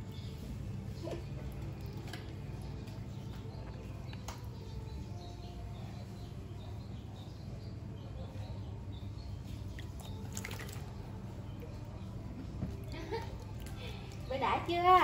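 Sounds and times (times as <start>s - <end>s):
water splashing: 9.8s - 11.0s.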